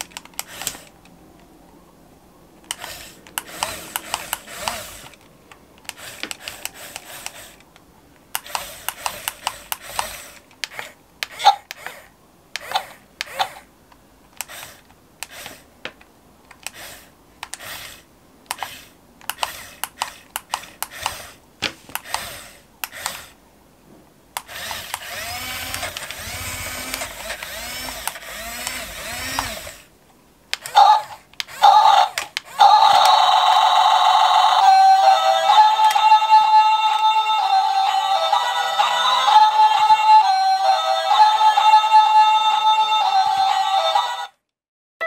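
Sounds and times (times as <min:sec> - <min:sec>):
small electric motors whirring: 0:00.4 - 0:01.0, 0:02.7 - 0:05.2, 0:05.9 - 0:07.7, 0:08.4 - 0:13.7, 0:14.4 - 0:15.7, 0:16.6 - 0:21.4, 0:22.0 - 0:23.4, 0:24.4 - 0:29.9
music: 0:34.0 - 0:44.4.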